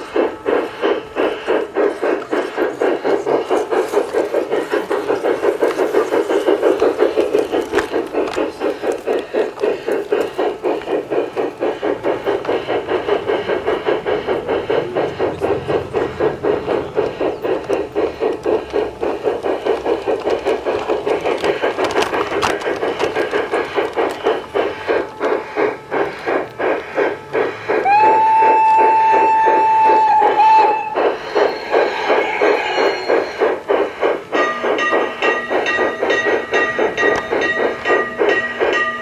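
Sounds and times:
model steam locomotive chuffing: 0:00.0 - 0:39.0
locomotive whistle: 0:27.8 - 0:33.3.

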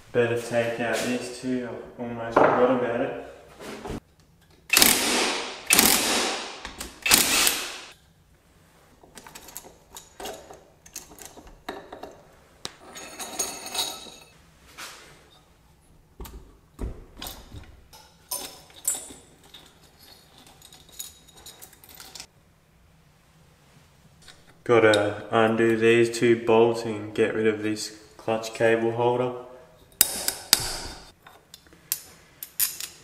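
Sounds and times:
small power tool whirring: 0:07.0 - 0:07.9
tools and bolts clinking: 0:09.1 - 0:14.4, 0:17.2 - 0:22.3, 0:29.9 - 0:33.0.

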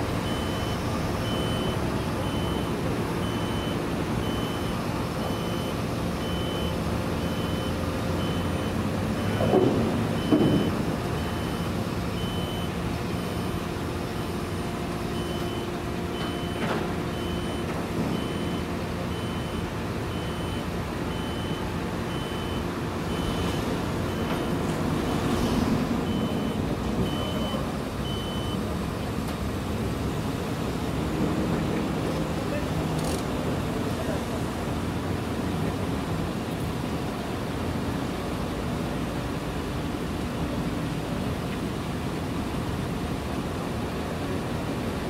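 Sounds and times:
truck engine humming: 0:00.0 - 0:32.6
backup alarm beeping: 0:00.2 - 0:14.5, 0:15.1 - 0:28.6.

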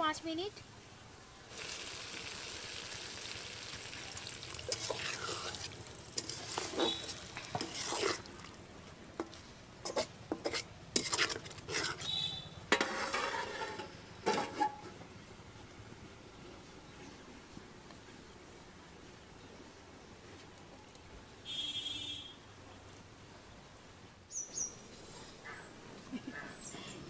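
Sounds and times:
curry sizzling in a pan: 0:01.5 - 0:08.6
metal spatula scraping a pan: 0:04.7 - 0:08.3, 0:09.8 - 0:14.9.

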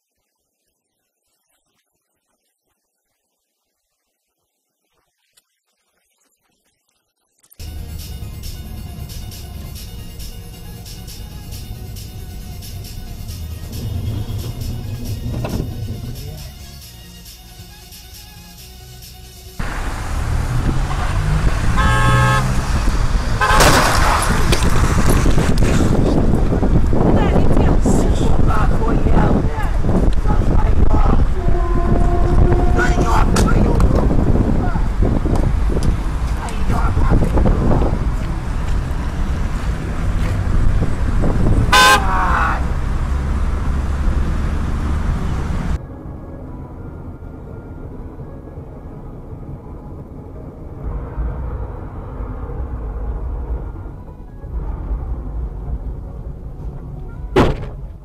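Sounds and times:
car horn honking: 0:07.6 - 0:16.7, 0:19.6 - 0:24.3, 0:31.3 - 0:33.6, 0:41.6 - 0:43.1
traffic rumble: 0:07.6 - 0:17.0, 0:19.6 - 0:58.0
car horn honk: 0:19.6 - 0:24.3, 0:31.3 - 0:33.5, 0:41.6 - 0:42.8
car collision crunch: 0:23.3 - 0:26.0, 0:57.3 - 0:58.0.

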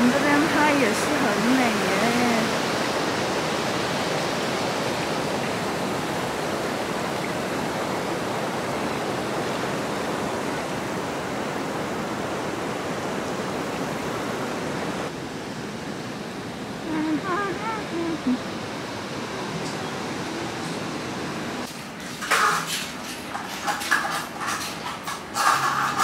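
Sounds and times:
river rushing over a weir: 0:00.0 - 0:22.8.

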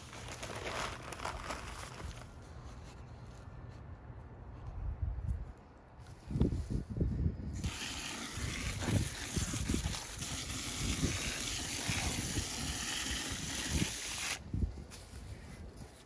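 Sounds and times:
water spraying from hose: 0:07.5 - 0:14.4.

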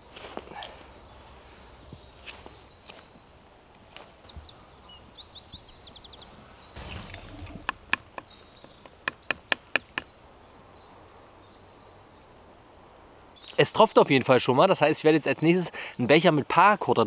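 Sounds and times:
small birds chirping: 0:00.2 - 0:12.4, 0:13.3 - 0:14.0.

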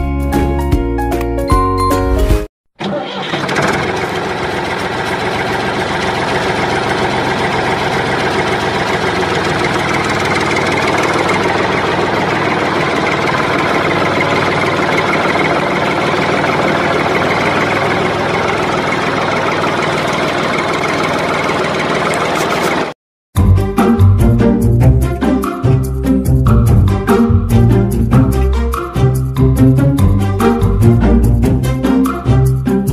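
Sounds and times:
tractor engine chugging: 0:02.8 - 0:23.0.

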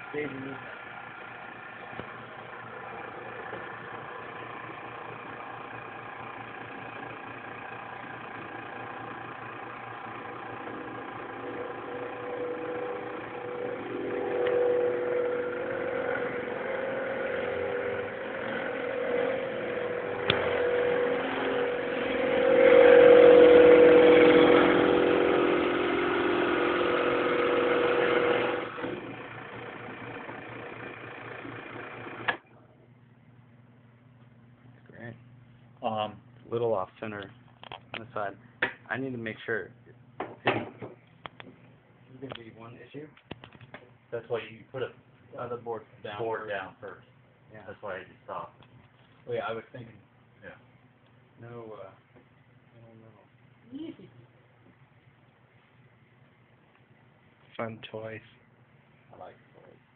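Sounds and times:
drill press motor humming: 0:00.0 - 0:32.5
drill bit cutting into board: 0:10.6 - 0:32.4.

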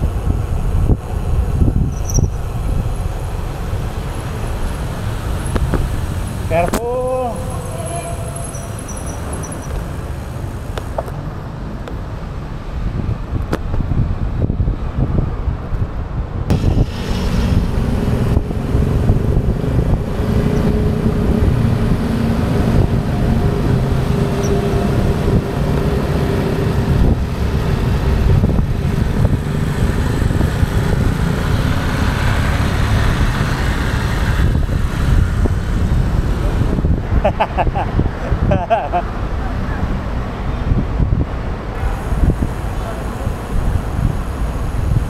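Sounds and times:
road traffic engines: 0:00.0 - 0:45.0
wind on microphone: 0:00.0 - 0:45.0
motor scooter engine hum: 0:16.5 - 0:39.8.

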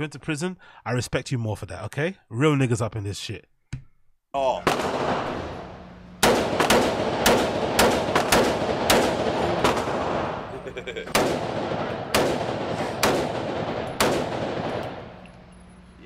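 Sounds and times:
rifle shots echoing indoors: 0:04.6 - 0:15.9.

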